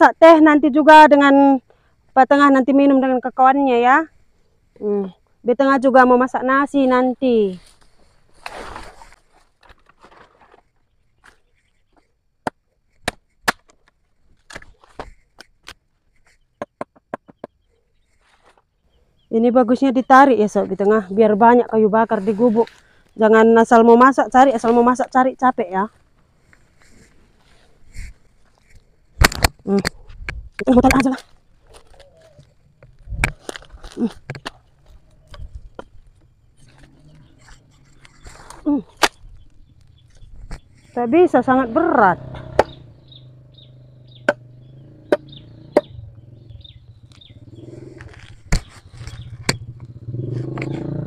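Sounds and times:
branches rustling: 6.3 - 16.5, 17.7 - 44.6, 46.6 - 51.0
dry wood snapping: 12.4 - 15.9, 29.2 - 40.8, 48.0 - 50.8.

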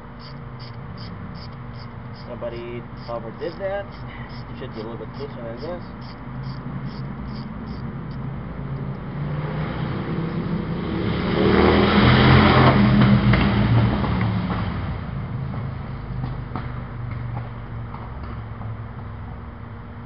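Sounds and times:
motor vehicle passing by: 0.0 - 19.5.

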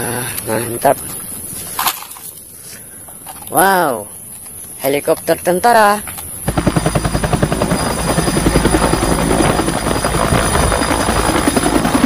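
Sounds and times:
helicopter engine rumble: 6.1 - 12.0
helicopter rotor chopping: 6.2 - 12.0.

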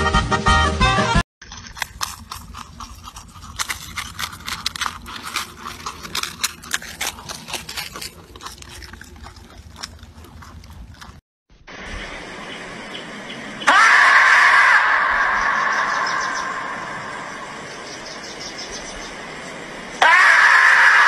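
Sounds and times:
marmots crunching carrot: 1.4 - 11.2
low rumble: 15.0 - 20.0.

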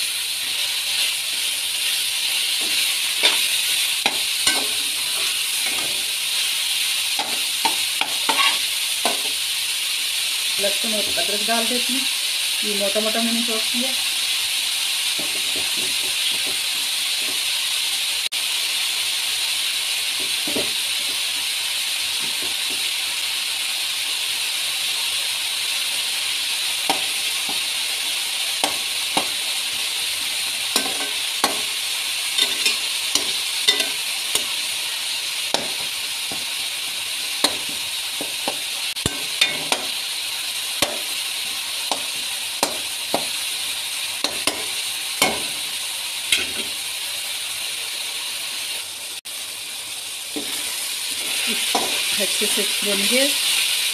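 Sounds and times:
meat sizzling in hot oil: 0.0 - 53.9
metal spatula scraping pot: 7.2 - 9.3, 32.4 - 34.6, 37.4 - 39.9.

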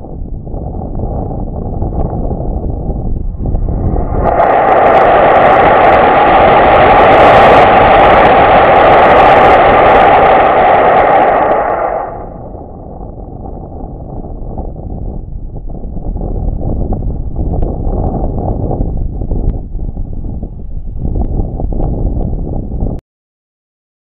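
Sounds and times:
wind on microphone: 0.0 - 23.0
rocket motor roaring: 1.9 - 14.7.

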